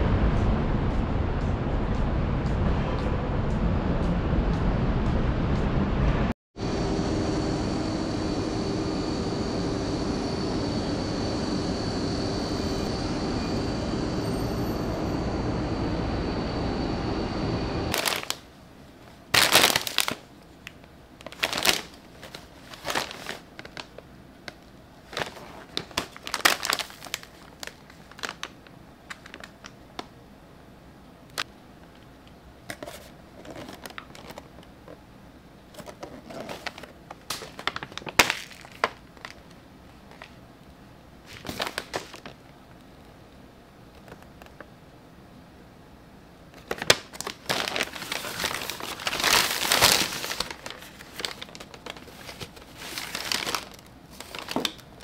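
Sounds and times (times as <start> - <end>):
city traffic: 0.0 - 18.0
plastic snack bags crinkling: 17.9 - 18.5, 19.4 - 24.0, 25.0 - 29.8, 35.8 - 40.4, 41.3 - 42.4, 46.6 - 55.0.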